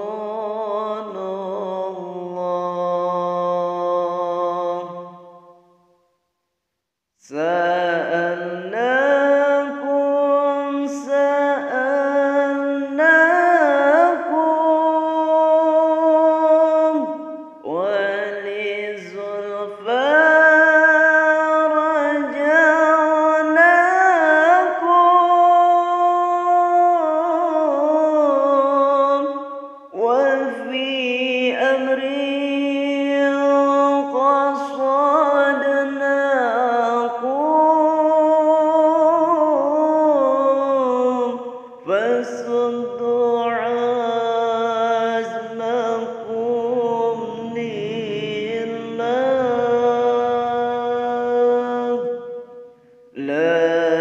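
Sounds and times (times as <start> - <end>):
man singing unaccompanied: 0.0 - 5.8, 7.2 - 54.0.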